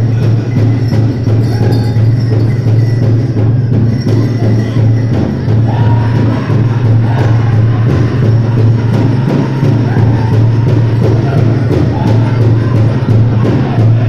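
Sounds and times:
large drum steady beat: 0.0s - 14.0s
voices singing: 4.0s - 14.0s.

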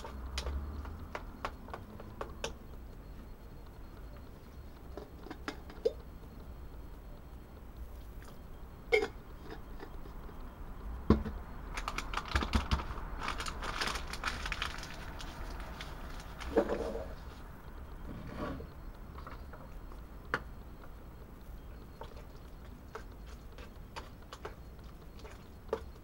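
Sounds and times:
spice mill grinding crackle: 7.6s - 18.0s, 18.6s - 26.0s.

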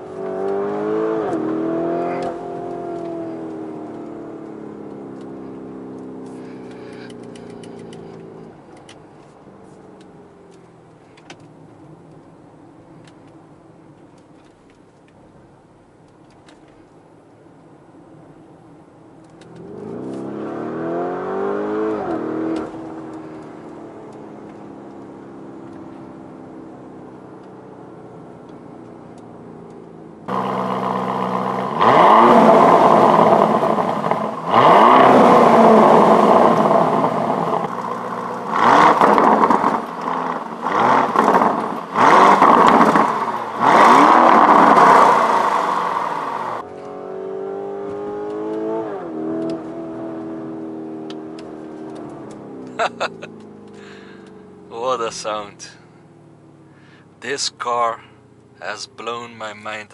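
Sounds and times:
car accelerating from inside cabin: 0.0s - 4.4s, 19.6s - 23.8s, 30.3s - 53.8s
car exhaust revving hard: 30.3s - 46.6s.

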